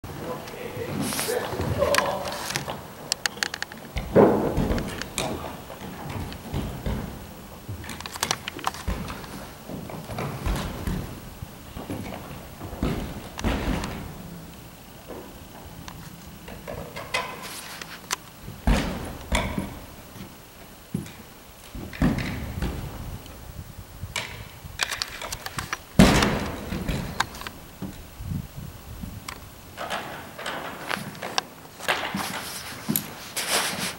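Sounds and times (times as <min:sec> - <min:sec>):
ice tools clicking on climbing holds: 0:01.2 - 0:04.0
heavy knock with deep thud: 0:18.6 - 0:19.8, 0:26.0 - 0:27.2.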